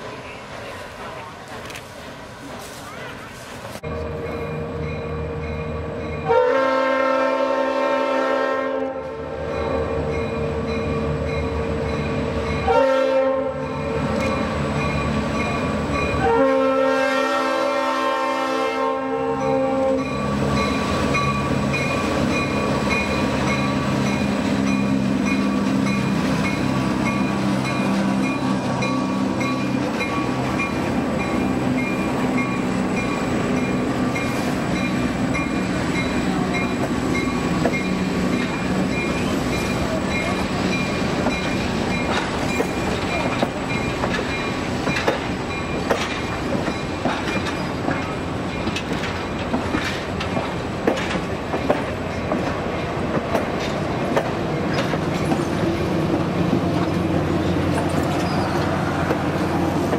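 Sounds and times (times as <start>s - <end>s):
diesel locomotive engine: 0.0s - 59.9s
train wheels clicking on rail joints: 0.4s - 3.0s, 13.6s - 16.3s, 19.4s - 59.9s.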